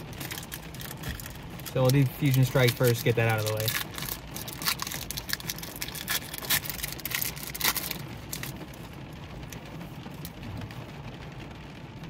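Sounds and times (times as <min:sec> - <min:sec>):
foil wrapper crinkling and tearing: 0:00.0 - 0:08.5.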